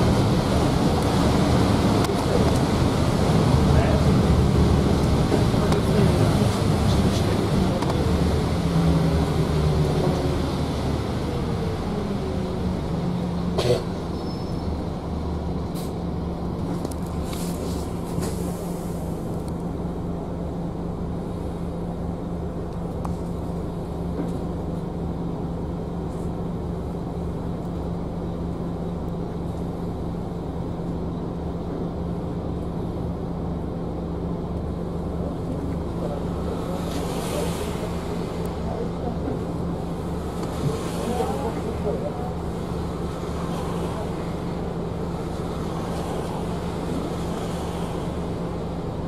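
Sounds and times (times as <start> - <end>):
bus engine running: 0.0 - 49.0
road noise: 0.0 - 49.0.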